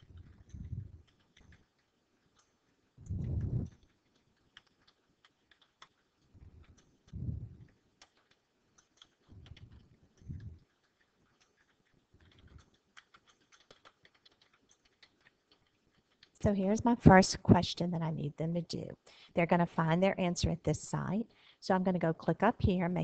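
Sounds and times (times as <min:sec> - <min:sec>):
typing on computer keyboard: 0:00.0 - 0:16.4
soft low thuds: 0:03.0 - 0:03.7.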